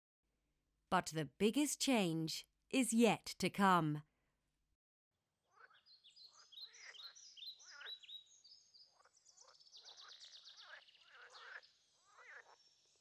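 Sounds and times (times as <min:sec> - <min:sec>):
frogs calling: 0:05.6 - 0:08.1, 0:08.9 - 0:12.6.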